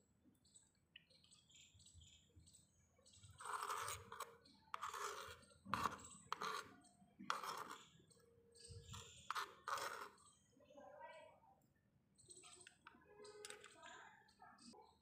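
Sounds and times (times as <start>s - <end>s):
metal spoon scraping clay pot: 3.2s - 10.4s.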